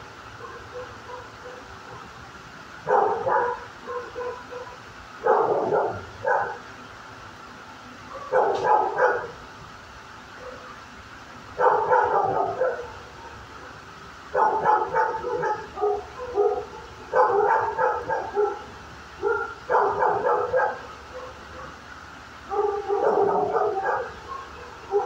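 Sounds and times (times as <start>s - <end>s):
dog barking in echoing room: 0.4s - 2.0s, 2.9s - 6.6s, 8.1s - 9.3s, 11.6s - 13.0s, 14.4s - 21.8s, 22.5s - 25.0s.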